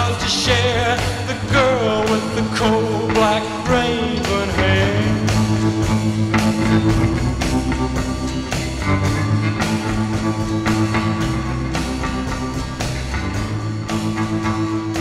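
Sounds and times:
drum kit beat: 0.0 - 15.0
electric guitar playing: 1.2 - 15.0.

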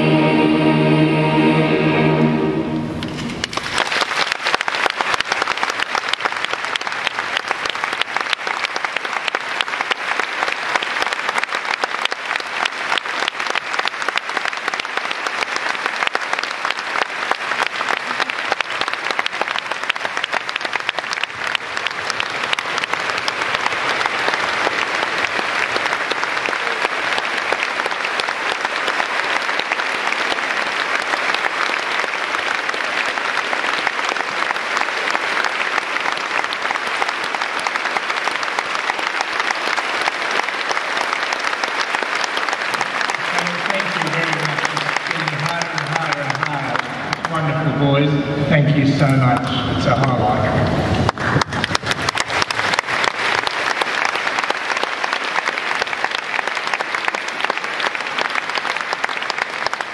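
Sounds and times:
boys' choir chord: 0.0 - 3.3
audience applause: 3.0 - 47.8, 49.0 - 59.9.

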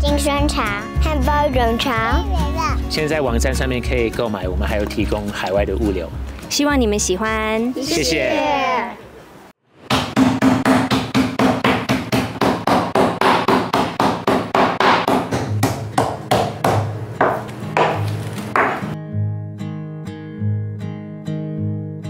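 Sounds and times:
acoustic guitar music: 0.0 - 8.4, 15.5 - 22.0
kitchen knife chopping: 9.9 - 18.9.

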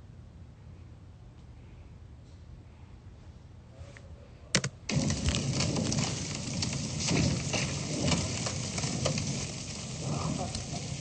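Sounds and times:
vape coil crackling sizzle: 4.9 - 11.0.

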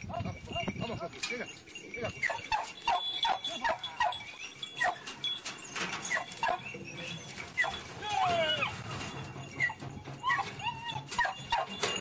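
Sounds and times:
dogs yelping: 2.2 - 12.0.

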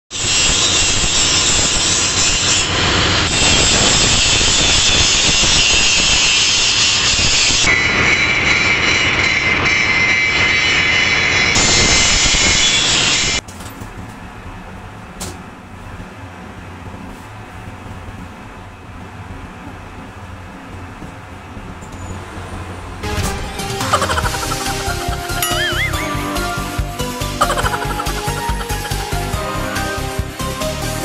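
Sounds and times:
angle grinder grinding steel: 24.0 - 29.7.

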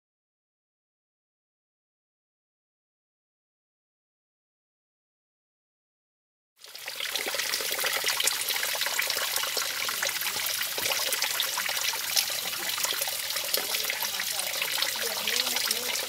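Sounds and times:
water trickling and dripping: 6.6 - 16.0.

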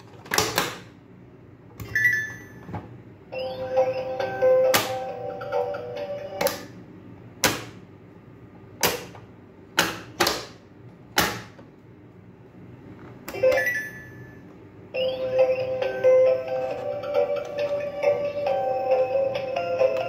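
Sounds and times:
toy tune: 3.3 - 6.5, 13.3 - 20.0.

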